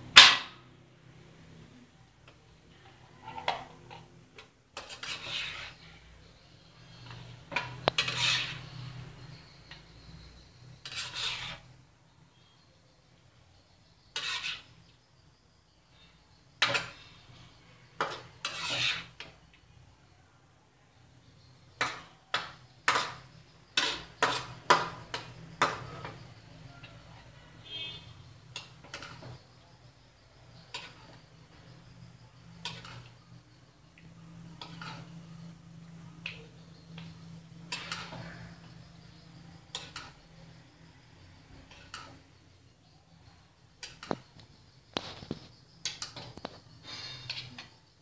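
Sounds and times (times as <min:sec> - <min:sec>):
spatula scraping a steel wok: 0:02.9 - 0:11.8, 0:13.6 - 0:14.9, 0:16.6 - 0:19.4, 0:21.8 - 0:27.0, 0:27.6 - 0:33.4, 0:34.1 - 0:47.8.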